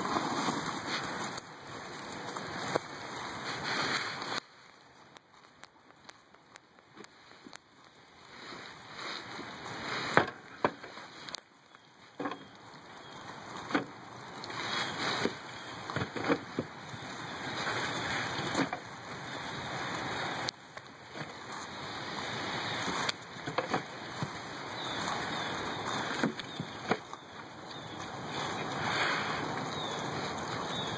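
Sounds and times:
pigs crunching corn stalks: 0.0s - 30.9s.

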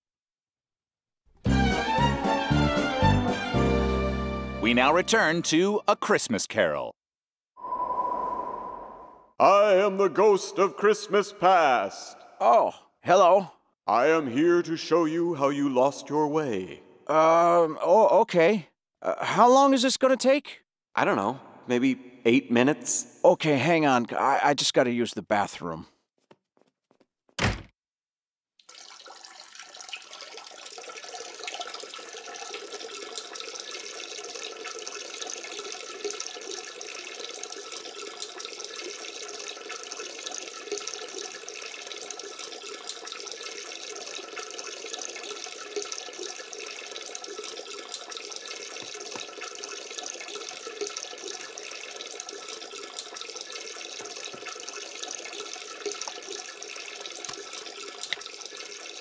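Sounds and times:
water running from a tap: 28.6s - 59.0s.

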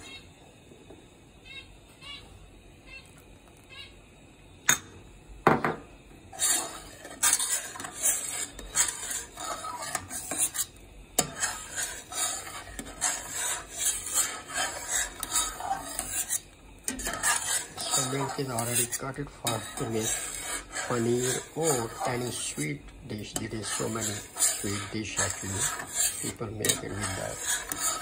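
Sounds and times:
metal spatula scraping steel pan: 6.3s - 28.0s.

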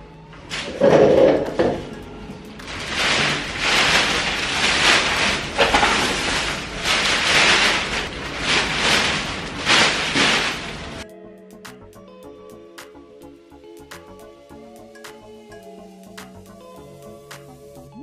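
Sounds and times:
plastic bag rustling and crinkling: 0.4s - 11.0s.

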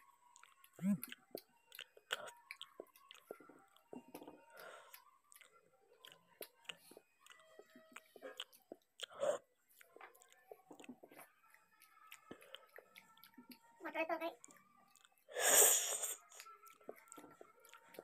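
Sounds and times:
close-miked chewing: 0.2s - 18.0s
wet mouth clicks and smacks: 0.4s - 13.7s, 16.0s - 18.0s.

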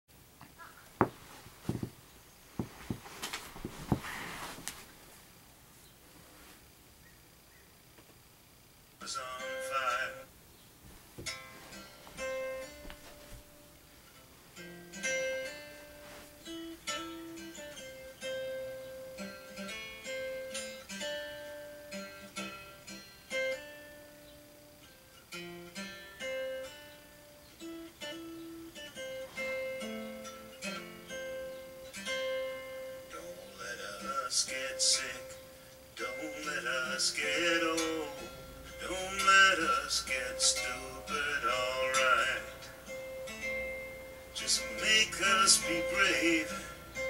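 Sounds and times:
acoustic guitar melody: 9.0s - 10.3s, 11.2s - 47.0s.

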